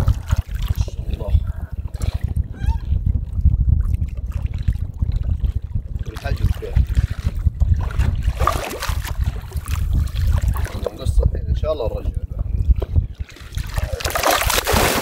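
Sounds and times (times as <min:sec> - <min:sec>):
constant low rumble: 0:00.0 - 0:15.0
shark splashing in water: 0:13.7 - 0:15.0.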